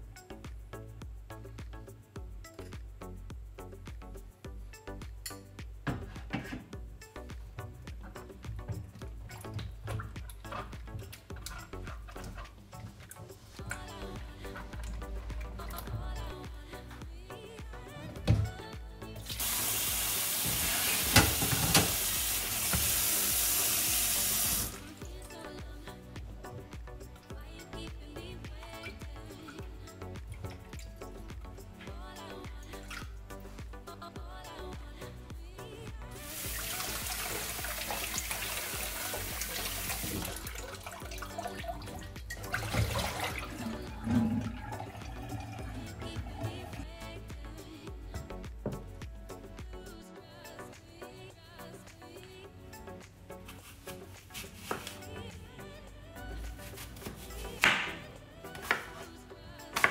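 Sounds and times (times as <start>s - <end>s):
background music: 0.0s - 59.9s
tap water running into bowl: 19.3s - 24.8s, 36.3s - 46.8s.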